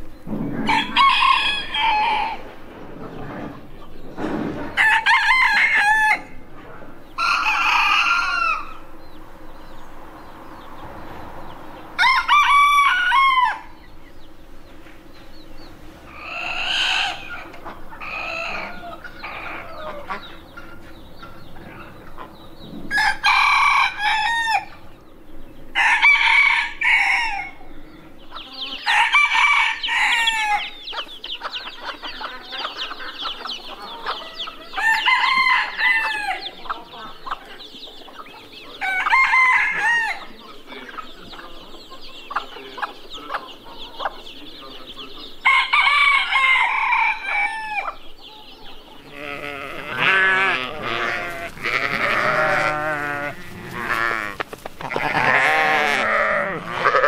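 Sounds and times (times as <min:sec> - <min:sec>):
roosters crowing: 0:00.0 - 0:57.0
sheep bleating: 0:49.0 - 0:57.0.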